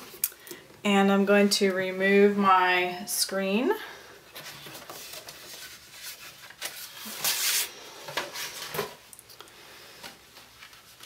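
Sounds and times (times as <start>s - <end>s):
rubbing and scraping of plastic: 4.3s - 9.0s.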